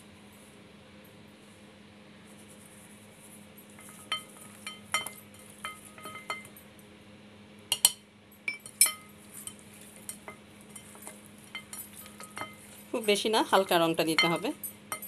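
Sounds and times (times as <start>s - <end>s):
metal spoon clinking on plate: 3.8s - 6.6s, 7.7s - 12.8s, 14.2s - 15.0s.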